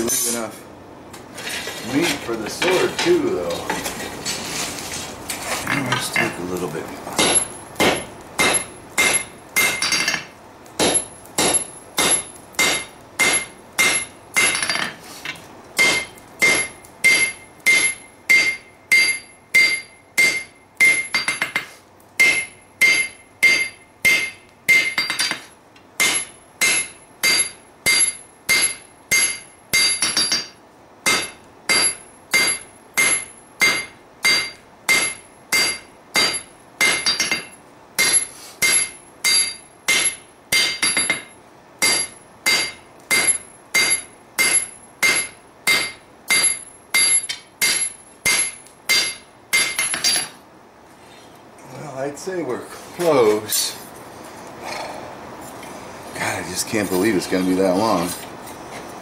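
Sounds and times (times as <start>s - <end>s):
hammer striking steel on anvil: 7.2s - 15.0s, 15.8s - 50.4s.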